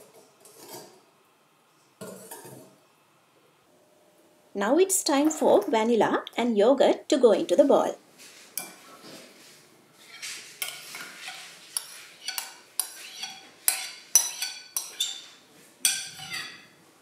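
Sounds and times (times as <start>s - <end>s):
metal spoon scraping bowl: 10.0s - 16.8s.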